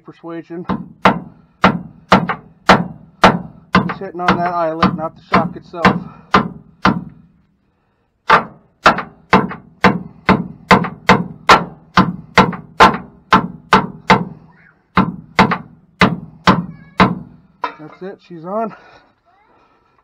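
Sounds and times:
hammer striking metal: 0.7s - 7.2s, 8.3s - 14.4s, 15.0s - 18.1s.

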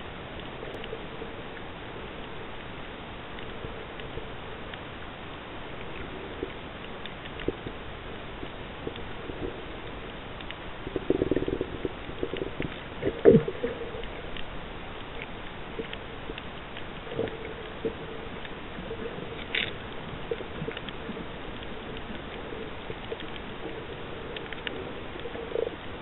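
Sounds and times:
muffled underwater hiss: 0.0s - 26.0s
underwater clicks: 5.6s - 26.0s.

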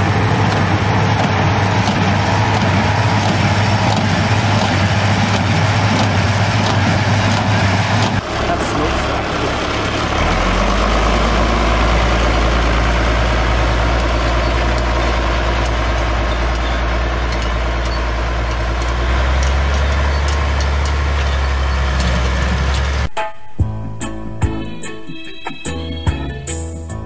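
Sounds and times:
baler machinery: 0.0s - 23.1s
tractor engine running: 0.0s - 23.1s
music: 23.1s - 27.0s.

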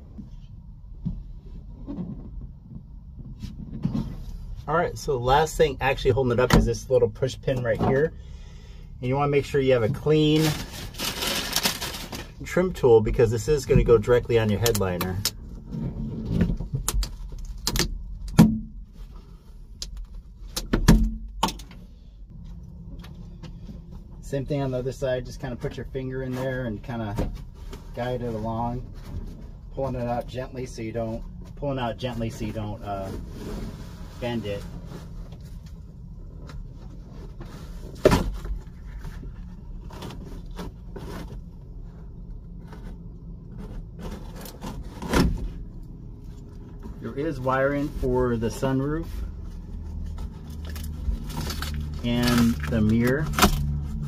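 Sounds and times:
headliner board rustling and scraping: 0.2s - 6.8s, 13.3s - 17.5s, 23.1s - 54.0s.

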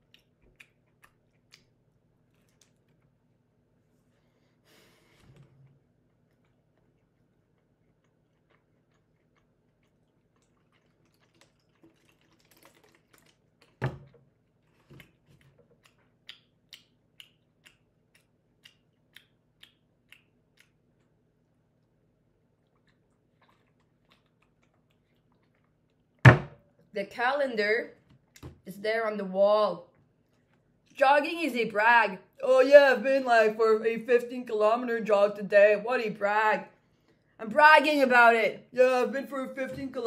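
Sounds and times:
chewing crunches: 0.0s - 3.2s, 6.1s - 13.8s, 14.4s - 21.2s, 22.4s - 26.2s
thump: 26.3s - 26.6s.

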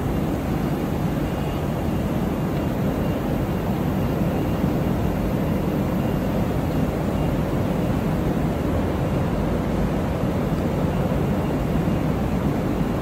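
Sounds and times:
factory background hum: 0.0s - 13.0s.

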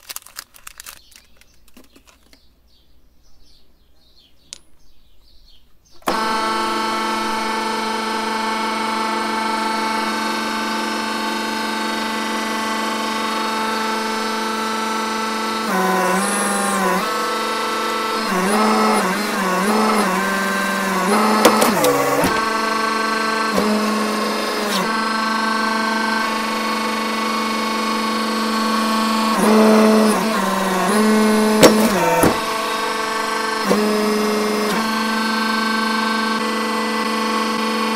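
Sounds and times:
lollipops cracking under press: 0.0s - 2.4s
hydraulic pump motor humming: 6.0s - 37.9s.

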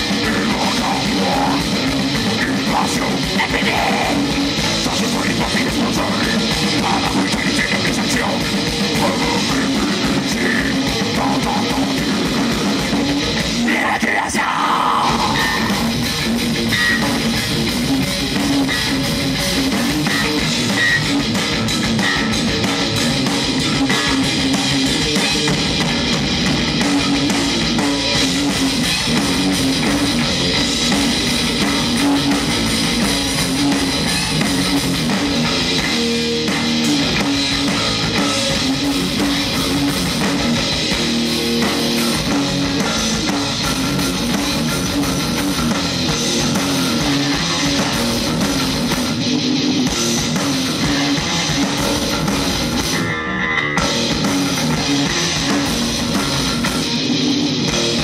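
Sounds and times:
distorted electric guitars: 0.0s - 58.0s
pounding drum kit: 0.0s - 58.0s.

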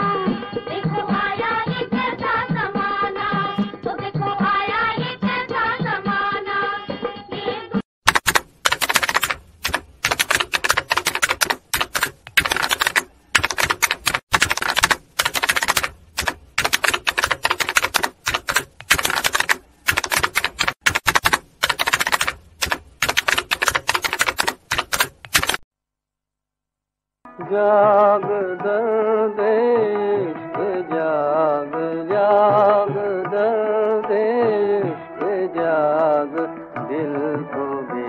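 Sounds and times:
typewriter key clatter: 8.1s - 25.6s.

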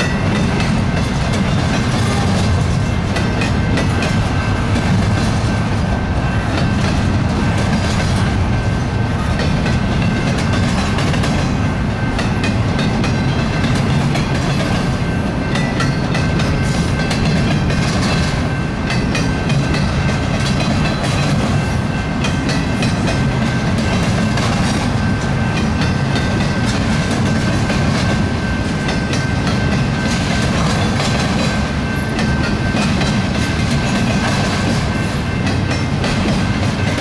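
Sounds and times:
freight train rumbling past: 0.0s - 37.0s.

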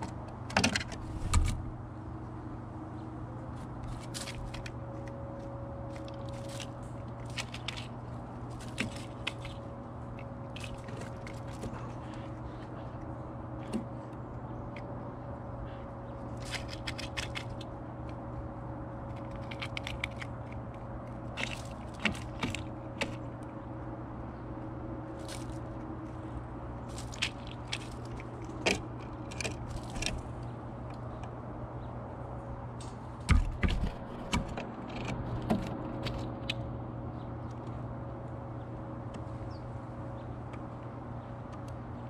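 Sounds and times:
steady low hum: 0.0s - 42.0s
bird pecking at seeds: 3.6s - 15.0s, 16.1s - 23.6s, 24.6s - 31.2s.

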